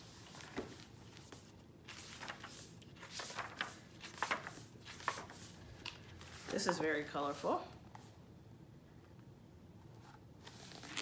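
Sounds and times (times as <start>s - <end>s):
book pages turning: 0.0s - 6.8s, 10.4s - 11.0s.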